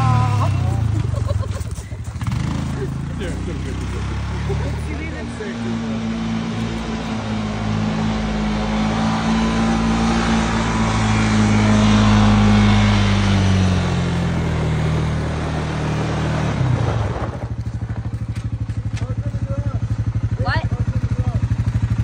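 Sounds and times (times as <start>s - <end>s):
quad bike engine: 0.0s - 22.0s.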